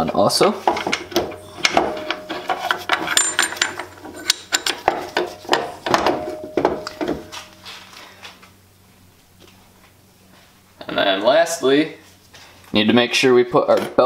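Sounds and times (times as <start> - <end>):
metal parts clinking and clanking: 0.7 - 7.5.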